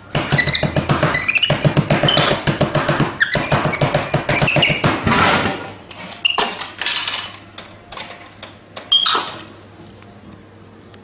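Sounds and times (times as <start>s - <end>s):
monkey squeaks: 0.3s - 2.3s, 3.2s - 4.8s, 8.9s - 9.4s
clattering in dispenser tray: 4.4s - 9.3s.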